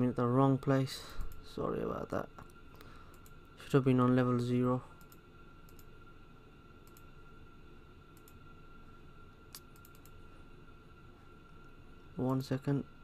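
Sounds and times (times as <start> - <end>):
faint high whine: 0.0 - 13.0
steady low hiss: 0.0 - 13.0
faint computer mouse clicks: 5.0 - 5.9, 6.8 - 7.1, 8.2 - 8.4, 9.5 - 10.2.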